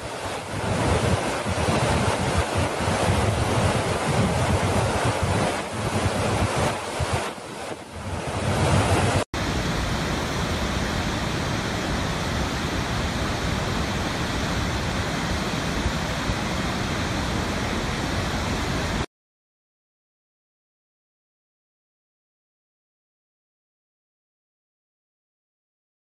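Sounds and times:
wind buffeting microphone: 0.0 - 9.6
large waterfall roaring: 0.0 - 19.1.

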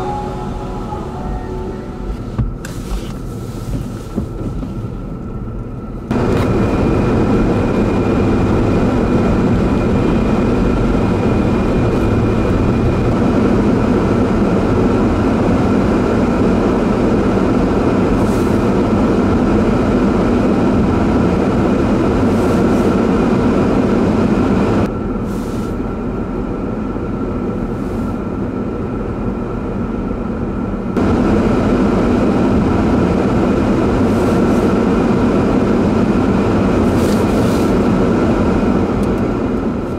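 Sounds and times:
faint hum: 0.0 - 3.2
highway traffic rumble: 0.0 - 39.9.

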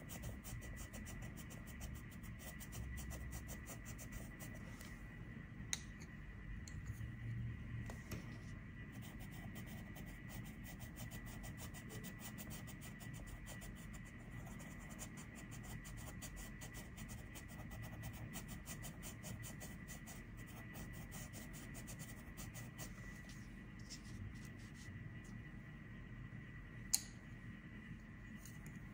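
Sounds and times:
pencil scratching on paper: 0.0 - 4.6, 8.9 - 23.0.

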